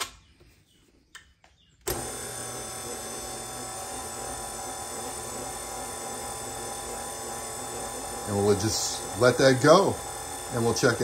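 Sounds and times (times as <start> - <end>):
stand mixer motor running: 1.9 - 11.0.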